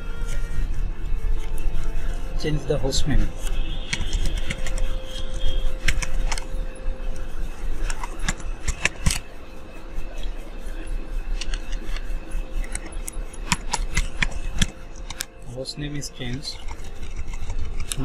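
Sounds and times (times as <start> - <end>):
steady low hum: 0.0 - 18.0
computer keyboard keys clicking: 3.5 - 6.5, 7.8 - 9.3, 12.6 - 15.3, 16.1 - 18.0.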